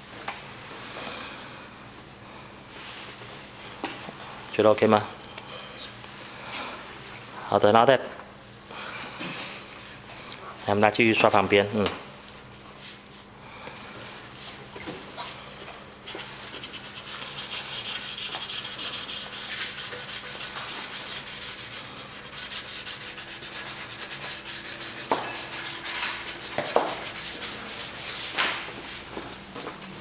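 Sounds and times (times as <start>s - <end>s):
pad scrubbing wet metal plate: 16.6s - 28.4s.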